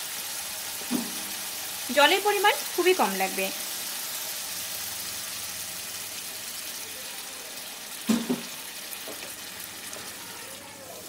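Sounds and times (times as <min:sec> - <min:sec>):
sauce sizzling in a pan: 0:00.0 - 0:11.0
water pouring into a pan: 0:03.6 - 0:11.0.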